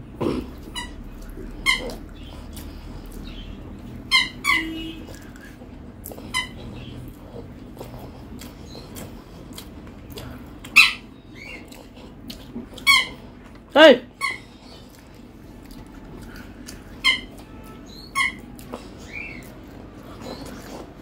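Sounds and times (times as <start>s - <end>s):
squeaky toy squeaks: 0.6s - 2.0s, 4.0s - 5.0s, 6.3s - 6.8s, 12.8s - 13.2s, 14.2s - 14.5s, 17.0s - 19.4s.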